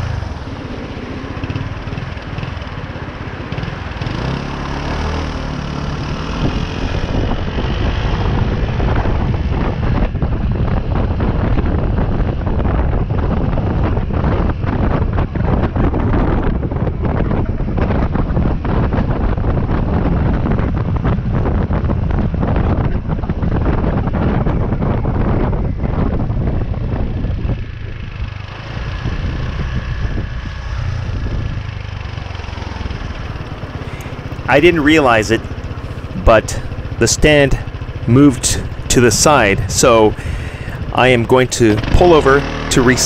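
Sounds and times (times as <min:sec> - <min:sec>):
motorcycle engine accelerating: 0:00.0 - 0:43.0
wind buffeting microphone: 0:00.0 - 0:43.0.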